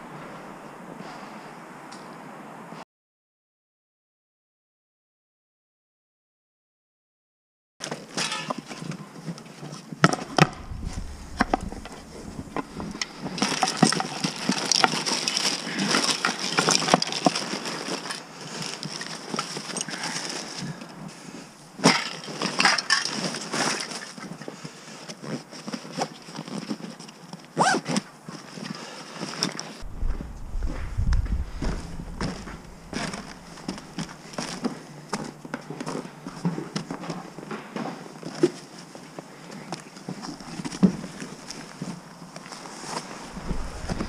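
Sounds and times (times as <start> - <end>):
bag fabric rustling: 10.4 - 16.1, 31.3 - 34.7.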